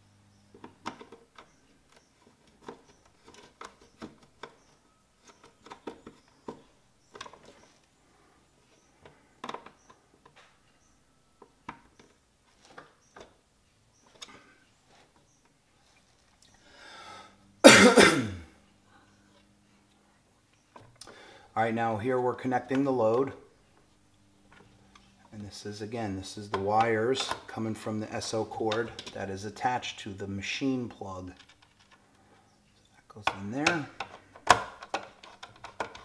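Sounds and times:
person coughing: 0:17.6 - 0:18.5.

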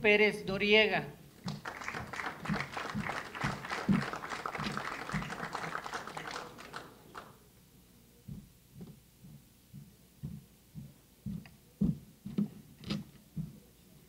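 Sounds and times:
audience applauding: 0:01.4 - 0:07.4.

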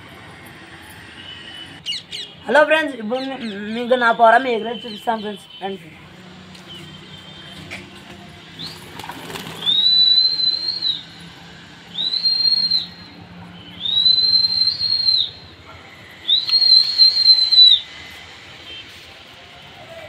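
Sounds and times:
person whistling shrilly: 0:09.6 - 0:11.2, 0:11.9 - 0:15.5, 0:16.2 - 0:17.9.

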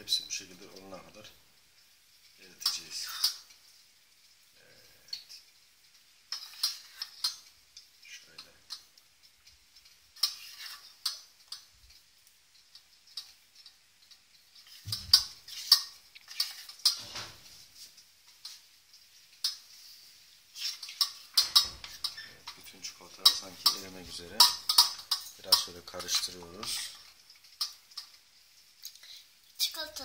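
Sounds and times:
utensil clinking in metal bowl: 0:02.6 - 0:03.5, 0:06.3 - 0:07.5, 0:20.6 - 0:28.2.

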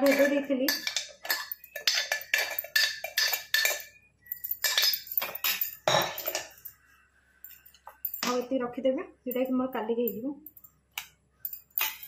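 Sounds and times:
steel kitchenware clinking: 0:00.0 - 0:06.8, 0:07.4 - 0:08.5, 0:11.4 - 0:12.0.

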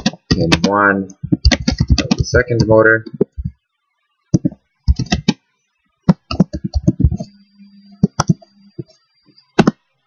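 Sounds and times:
typing on a keyboard: 0:00.0 - 0:03.6, 0:04.4 - 0:05.4, 0:06.1 - 0:07.3, 0:08.0 - 0:08.5.

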